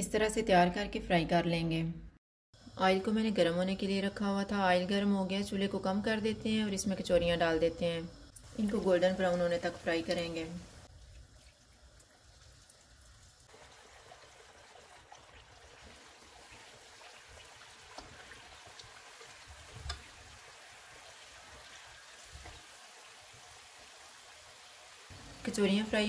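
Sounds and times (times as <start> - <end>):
hot oil sizzling: 2.6 - 26.0.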